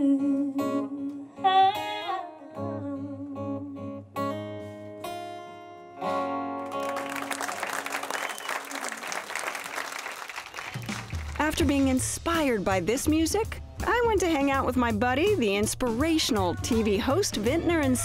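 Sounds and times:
woman singing: 0:00.0 - 0:04.0
acoustic guitar: 0:00.0 - 0:08.0
audience applauding: 0:06.6 - 0:11.6.

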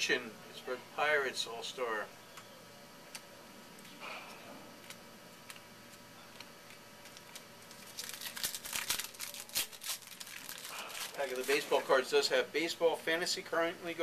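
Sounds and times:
wrapper crinkling and tearing: 0:04.8 - 0:12.0.

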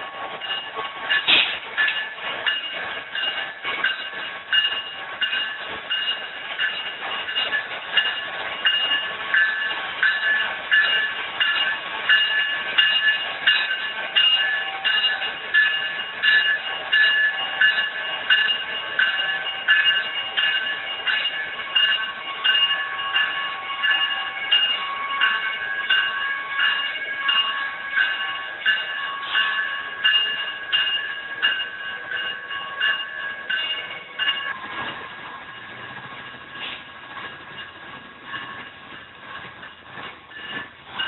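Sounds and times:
freight train rumbling past: 0:00.0 - 0:41.0
electronic crossing bells ringing: 0:00.4 - 0:34.6.

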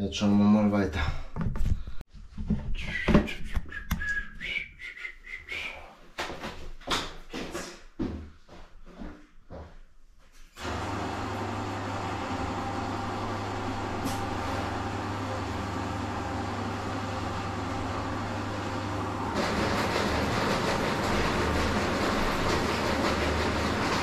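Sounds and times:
drain-cleaning machine running: 0:10.6 - 0:24.0.

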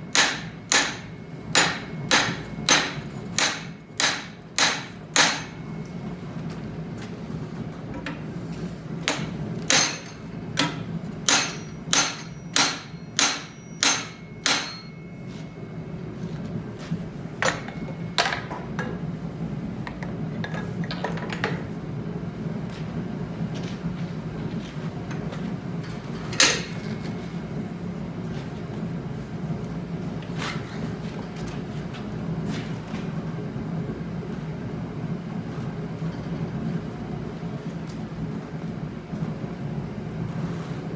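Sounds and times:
hammer striking hot steel: 0:00.0 - 0:05.9, 0:09.0 - 0:15.5, 0:17.4 - 0:18.6, 0:26.3 - 0:27.2
steady low hum: 0:00.0 - 0:40.9.

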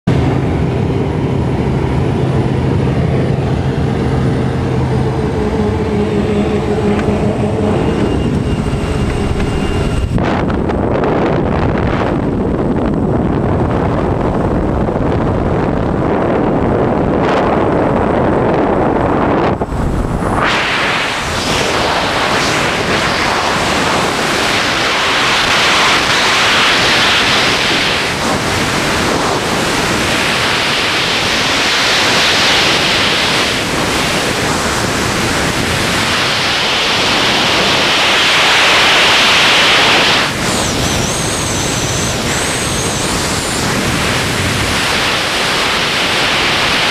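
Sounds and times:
plane engine and slipstream rumble: 0:00.0 - 0:46.9
freefall airflow hiss: 0:19.6 - 0:46.9.

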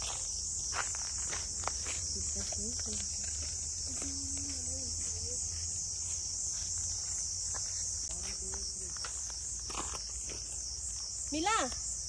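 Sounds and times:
insects buzzing: 0:00.0 - 0:12.0
faint person's voice: 0:03.9 - 0:05.5.

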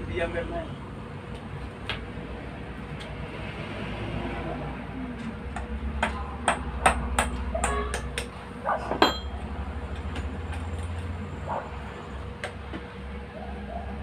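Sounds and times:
hammer knocking on metal: 0:05.6 - 0:09.3.

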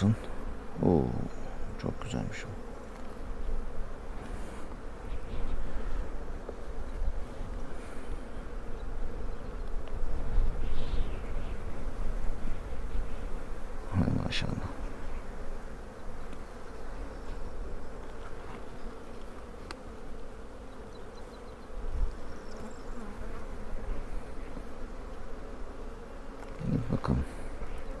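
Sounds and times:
honeybees buzzing: 0:00.0 - 0:28.0.

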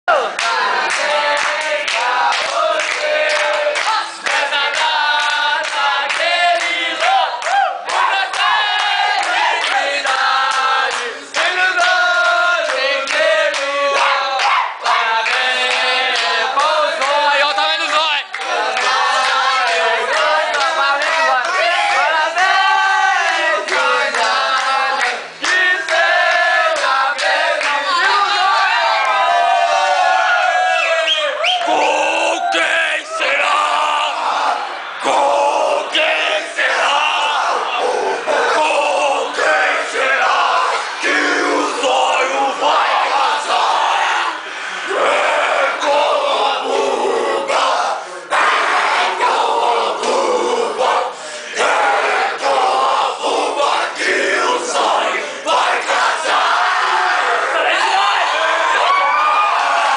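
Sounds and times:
group singing a celebration song: 0:00.1 - 0:59.9
hand clapping: 0:00.4 - 0:17.2.

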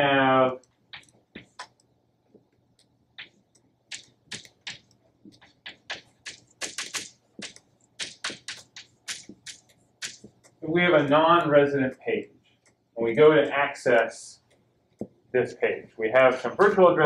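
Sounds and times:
chalk tapping and scraping on blackboard: 0:01.0 - 0:01.8, 0:03.2 - 0:10.6.

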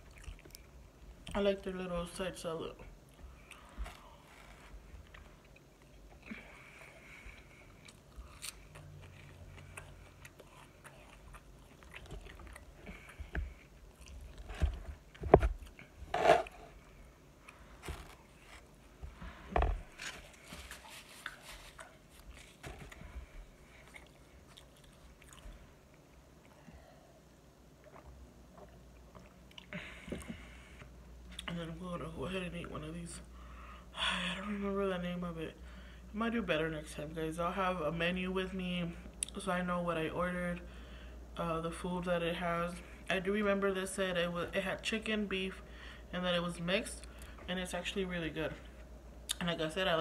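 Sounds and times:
person chewing food: 0:00.0 - 0:01.4, 0:03.1 - 0:19.1, 0:19.8 - 0:30.5
spoon scraping food container: 0:16.1 - 0:16.7.

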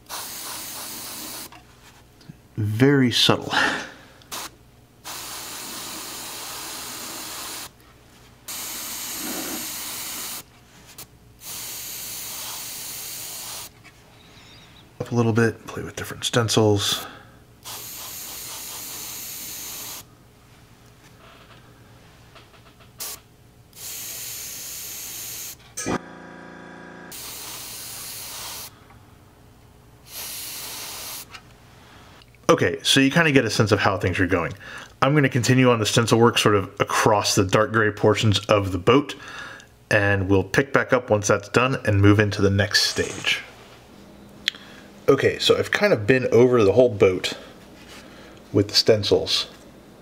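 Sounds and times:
airbrush spraying hiss: 0:00.0 - 0:01.5, 0:05.1 - 0:07.7, 0:08.5 - 0:10.5, 0:11.4 - 0:13.7, 0:17.6 - 0:20.0, 0:23.8 - 0:25.6, 0:27.1 - 0:28.7, 0:30.0 - 0:31.3.

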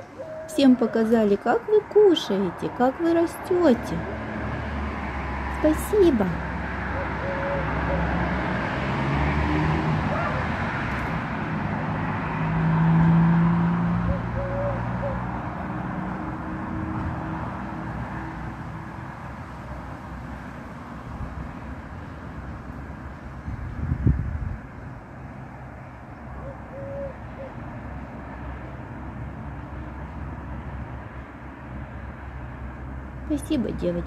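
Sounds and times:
motor vehicle passing: 0:00.0 - 0:34.0
street traffic noise: 0:00.0 - 0:34.0.

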